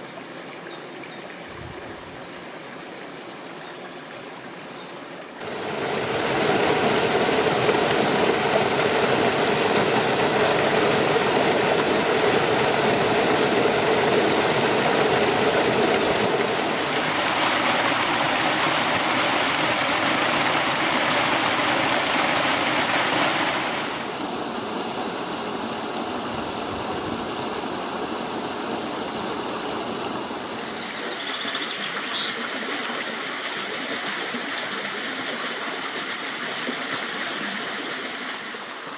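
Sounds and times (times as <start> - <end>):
stream rushing over rocks: 5.4 - 38.9.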